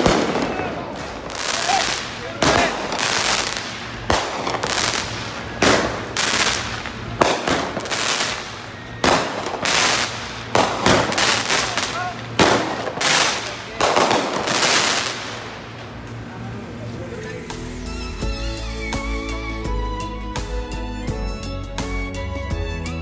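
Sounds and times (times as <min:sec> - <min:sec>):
fireworks banging: 0:00.0 - 0:17.7.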